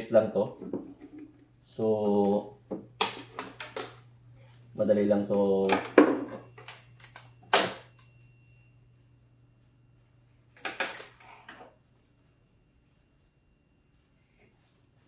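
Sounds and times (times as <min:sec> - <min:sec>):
metallic clinks and knocks: 0:06.6 - 0:08.1.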